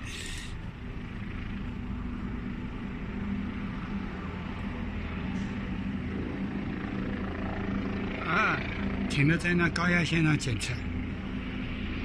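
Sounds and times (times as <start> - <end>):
distant helicopter hovering: 0.0 - 12.0.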